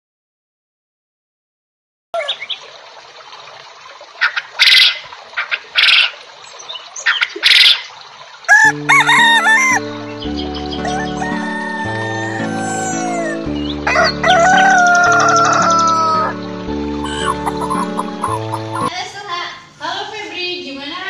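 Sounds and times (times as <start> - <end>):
chickens squawking: 2.2 - 2.6, 4.2 - 6.2, 7.0 - 7.9, 8.5 - 18.9
rooster crowing: 8.5 - 9.8, 10.8 - 16.4, 17.0 - 18.9
background music: 8.6 - 20.2.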